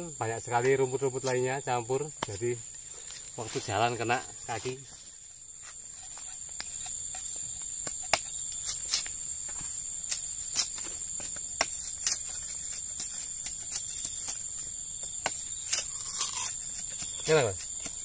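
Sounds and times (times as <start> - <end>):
high insect drone: 0.0 - 18.0
blades striking sugarcane stalks: 5.6 - 18.0.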